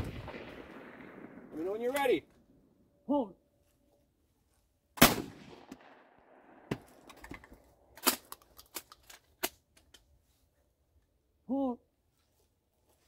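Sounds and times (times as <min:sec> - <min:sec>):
shotgun blast with echo: 0:05.0 - 0:06.0.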